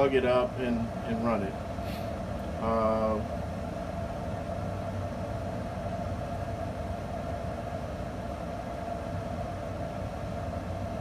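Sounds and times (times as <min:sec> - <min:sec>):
grill fan whirring: 0:00.0 - 0:11.0.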